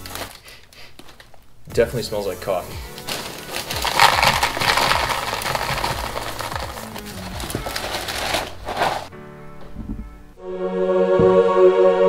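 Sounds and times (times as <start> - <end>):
background music: 0.0 - 0.5, 1.5 - 12.0
cereal pouring into plastic container: 2.9 - 9.1.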